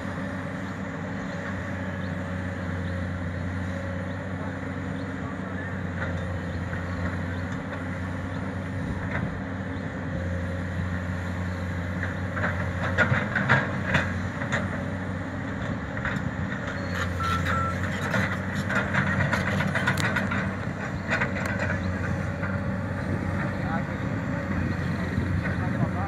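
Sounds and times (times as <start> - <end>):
excavator diesel engine running: 0.0 - 26.0.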